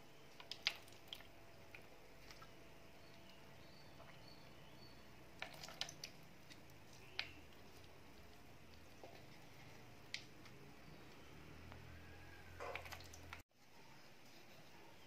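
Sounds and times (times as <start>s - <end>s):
juice dripping into plastic jug: 0.4s - 4.5s, 5.4s - 9.3s, 12.6s - 13.4s.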